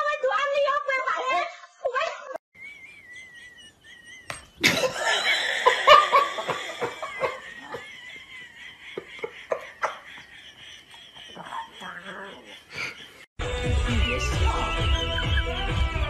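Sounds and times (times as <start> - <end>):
person laughing loudly: 2.6 - 13.3.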